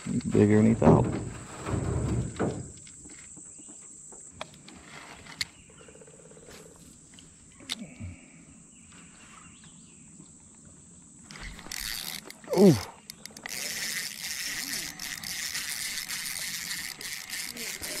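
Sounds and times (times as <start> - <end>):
insects buzzing: 0.0 - 18.0
sharp clicks: 11.3 - 18.0.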